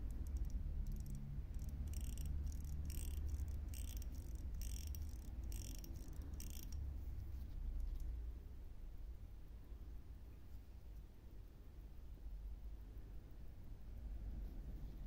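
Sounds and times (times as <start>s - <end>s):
watch crown ratchet clicking: 0.0s - 6.9s, 7.7s - 8.1s.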